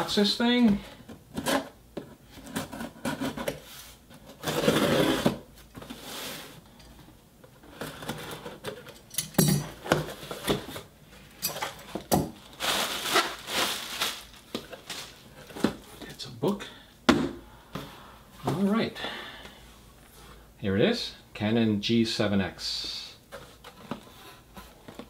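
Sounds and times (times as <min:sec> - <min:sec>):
packaging rustling: 0:11.6 - 0:16.1.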